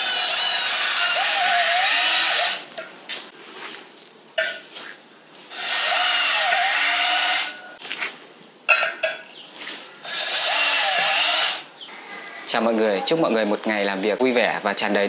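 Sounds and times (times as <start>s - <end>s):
cordless drill motor whirring: 0.0s - 2.7s, 10.0s - 11.6s.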